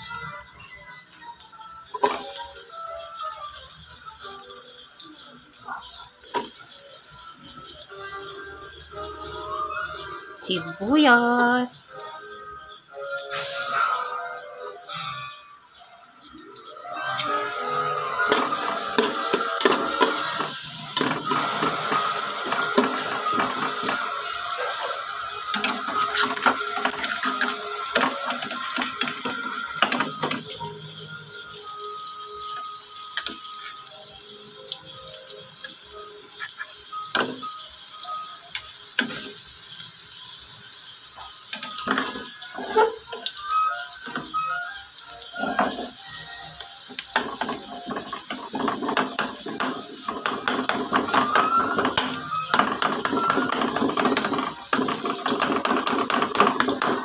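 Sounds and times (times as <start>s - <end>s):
onion sizzling in hot oil: 0.0s - 57.0s.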